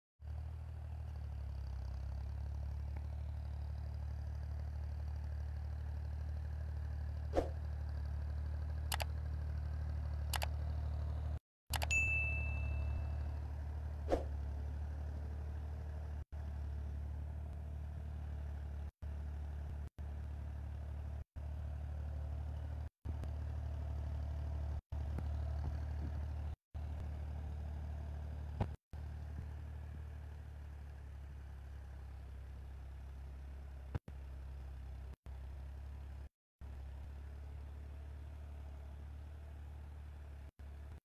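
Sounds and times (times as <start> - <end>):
tractor diesel engine running: 0.2 - 41.0
short clicks: 10.3 - 10.6, 11.7 - 12.0.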